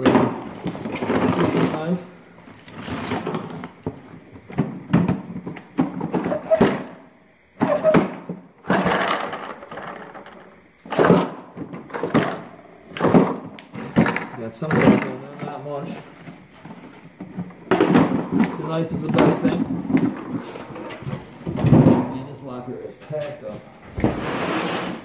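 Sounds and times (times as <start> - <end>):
plastic bags and paper rustling: 0.0 - 5.5
items knocking and clattering: 0.0 - 22.4.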